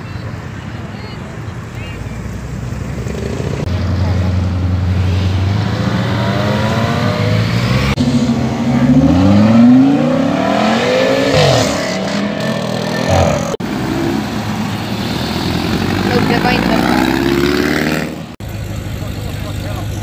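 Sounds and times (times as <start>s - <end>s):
car passing at low revs: 0.8s - 18.4s
car accelerating hard: 2.2s - 18.4s.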